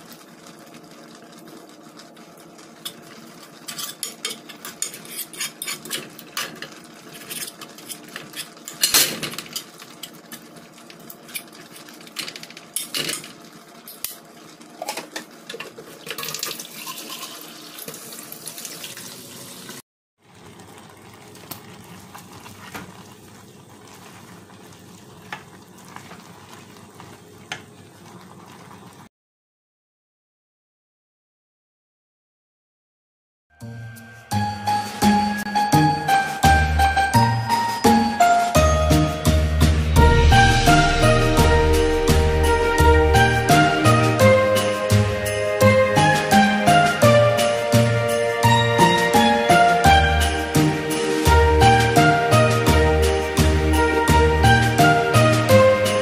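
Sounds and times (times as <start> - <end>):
utensil scraping a cooking pot: 3.6 - 8.9.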